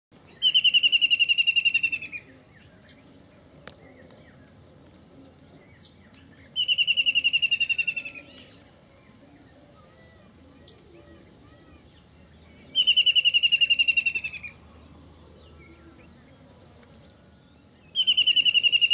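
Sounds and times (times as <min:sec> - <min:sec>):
kingfisher trilling call: 0:00.4 - 0:02.2, 0:12.8 - 0:14.6, 0:18.0 - 0:18.9.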